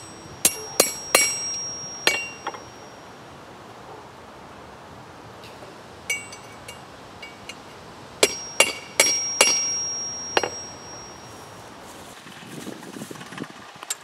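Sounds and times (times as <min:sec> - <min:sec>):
hammer striking anvil: 0:00.0 - 0:03.0, 0:06.1 - 0:07.6, 0:08.2 - 0:11.3
anvil ringing: 0:00.0 - 0:03.2, 0:06.1 - 0:11.5.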